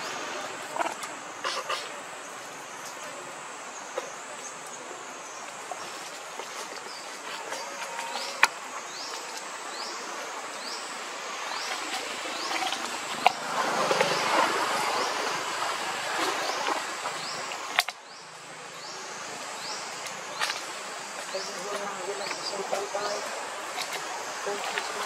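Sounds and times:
insect chirping: 0.0s - 25.0s.

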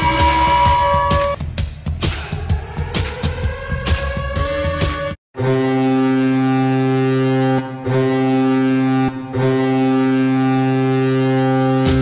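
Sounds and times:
arena goal horn blasts: 0.0s - 1.4s, 5.4s - 12.0s.

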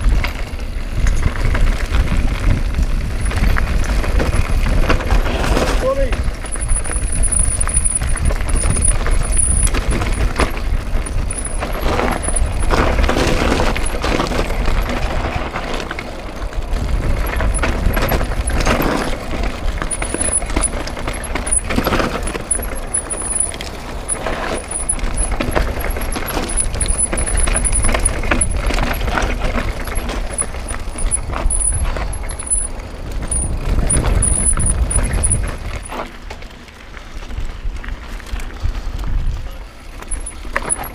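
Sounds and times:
bike knocking and rattling: 0.0s - 40.9s
tyres rolling over loose stones: 0.0s - 40.9s
wind buffeting microphone: 0.0s - 40.9s.

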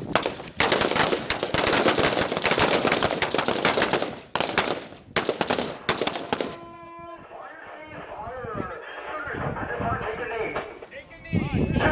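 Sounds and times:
rifle shots: 0.0s - 6.7s.

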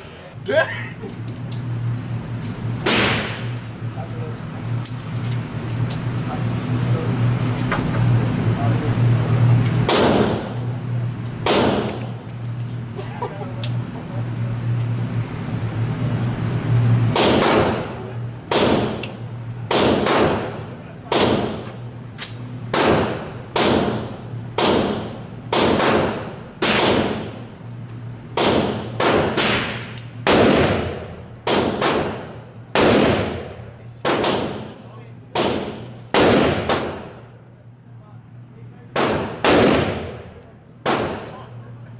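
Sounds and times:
low ventilation hum: 0.0s - 41.9s
gunshots echoing indoors: 17.1s - 19.1s, 19.7s - 21.7s, 22.7s - 27.4s, 28.3s - 34.7s, 35.3s - 37.2s, 38.9s - 41.4s.

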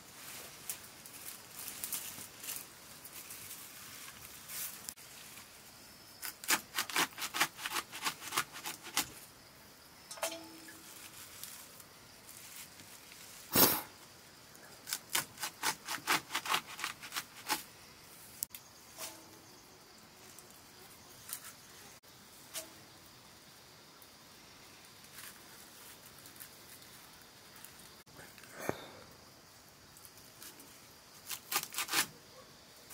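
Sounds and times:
blade slicing leafy greens: 6.2s - 9.2s, 14.8s - 17.6s, 31.2s - 32.1s.

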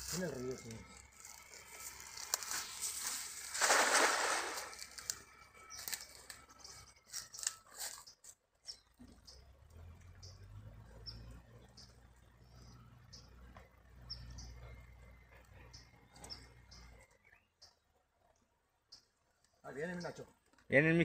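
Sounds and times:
rustling and clicks of line: 0.9s - 9.3s
net splashing into water: 3.2s - 5.0s.

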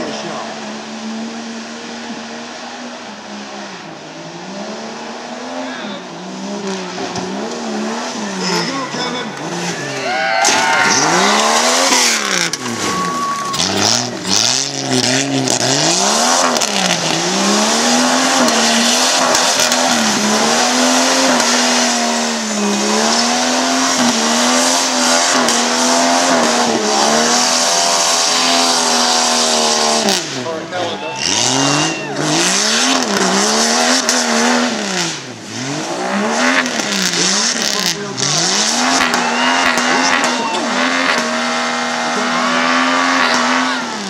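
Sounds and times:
heavy rushing noise: 0.0s - 36.1s
suv engine revving: 0.0s - 44.0s
tyres spinning and throwing dirt: 9.3s - 26.8s.

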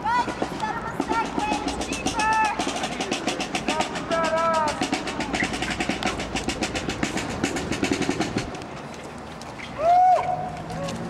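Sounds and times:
fast drumming: 0.0s - 8.6s.

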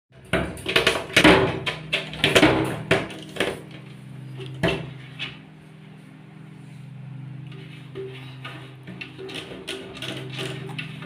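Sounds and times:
wire cage rattling and clanking: 0.2s - 3.8s, 8.0s - 11.0s
steady low hum: 0.2s - 11.0s.

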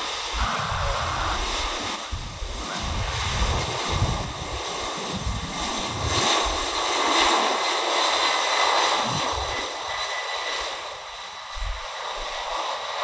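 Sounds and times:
gusty low rumble: 0.0s - 7.6s, 9.0s - 10.0s, 11.0s - 12.6s
high jet whine: 0.0s - 13.0s
jet engine roar: 0.0s - 13.0s.

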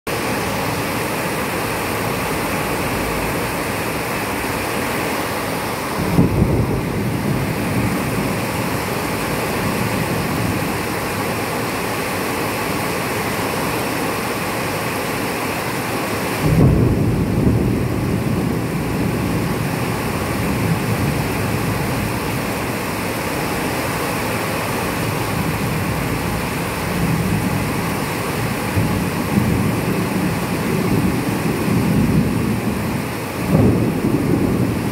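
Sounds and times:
steady rain: 0.1s - 34.9s
thunder clap rumbling: 5.8s - 11.3s, 16.4s - 22.9s, 24.9s - 34.9s.

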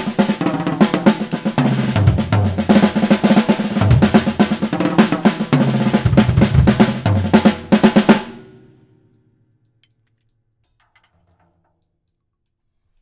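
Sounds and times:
drum kit playing funk groove: 0.0s - 8.6s.

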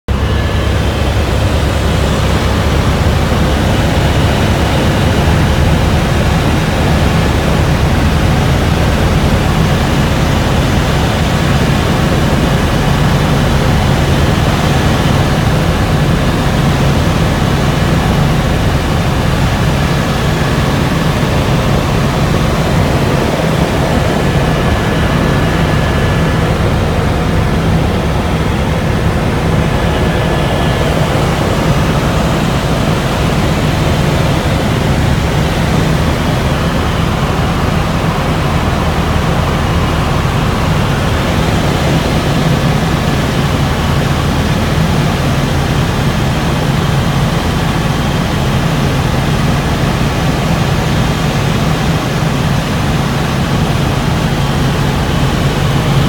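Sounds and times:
helicopter engine and rotors droning: 0.1s - 56.0s.

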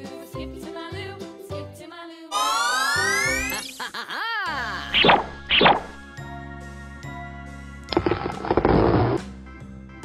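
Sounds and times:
children's background music: 0.0s - 3.9s, 4.5s - 10.0s
cartoon slide whistle glide: 2.3s - 3.7s, 5.0s - 6.0s.

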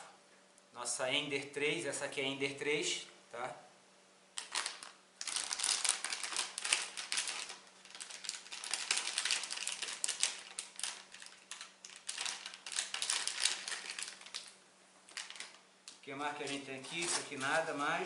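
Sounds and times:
plastic bag crinkling: 4.4s - 18.0s.

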